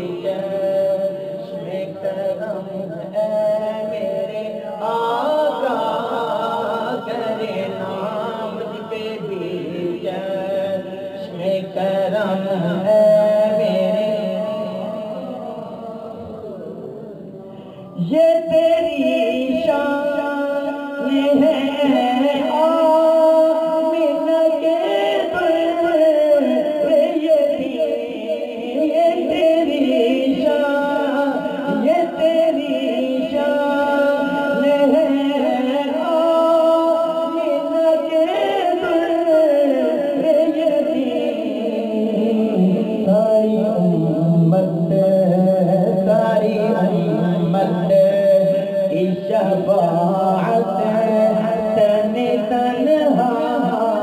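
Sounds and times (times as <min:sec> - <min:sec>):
chant-like vocal music: 0:00.0 - 0:54.0.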